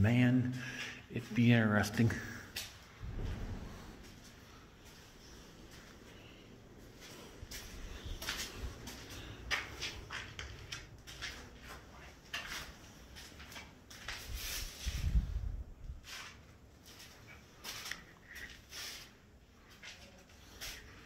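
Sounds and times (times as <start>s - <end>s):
footsteps crunching on debris: 6.9s - 14.9s.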